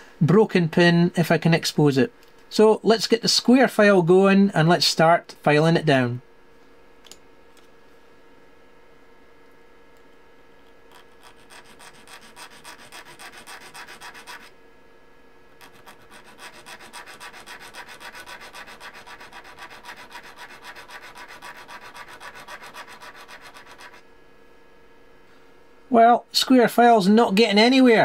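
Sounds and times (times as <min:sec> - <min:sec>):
file rasping on ceramic: 0:10.9 - 0:14.5, 0:15.6 - 0:24.0.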